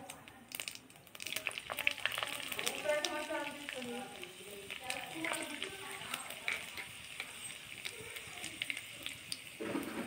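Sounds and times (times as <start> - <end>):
spices sizzling in hot oil: 0.0 - 10.0
spoon scraping a pan: 4.9 - 10.0.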